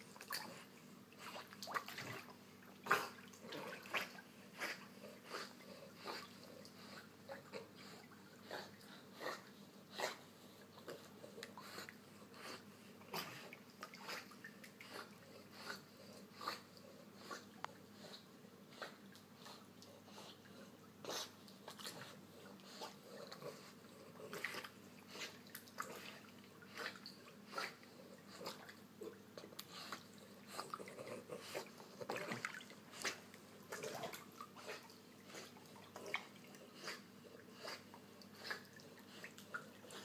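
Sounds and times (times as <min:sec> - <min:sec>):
dog paddling splashes: 0:01.3 - 0:02.4, 0:30.7 - 0:36.8.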